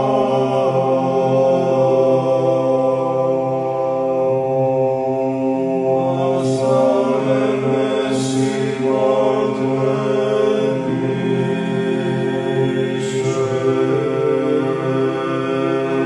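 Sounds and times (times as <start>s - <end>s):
low male chanting: 5.8s - 16.0s.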